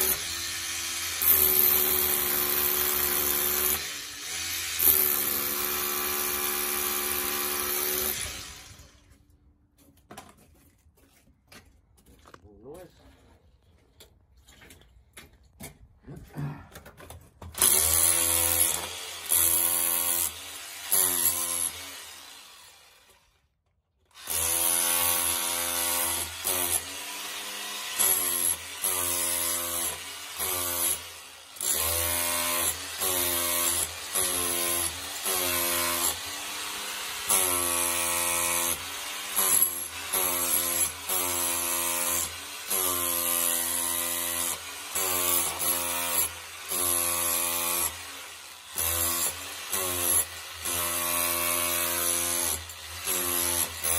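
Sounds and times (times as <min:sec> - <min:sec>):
rotary hammer chipping concrete: 0:00.0 - 0:09.1, 0:16.8 - 0:22.3, 0:24.2 - 0:53.9.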